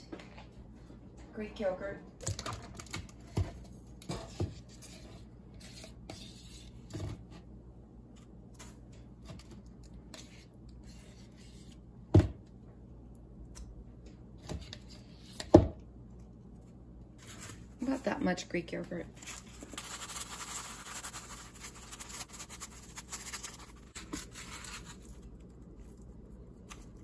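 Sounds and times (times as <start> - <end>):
spoon scraping yogurt: 4.0 - 7.1.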